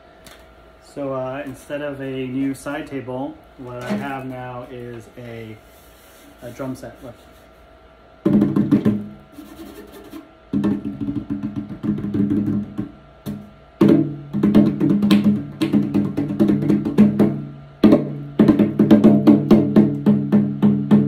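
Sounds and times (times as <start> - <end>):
hands slapping hollow plastic shell: 10.5 - 20.0.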